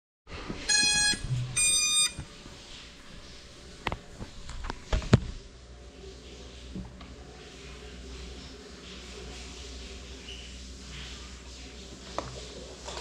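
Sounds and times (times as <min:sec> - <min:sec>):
electronic beeps: 0:00.7 - 0:02.2.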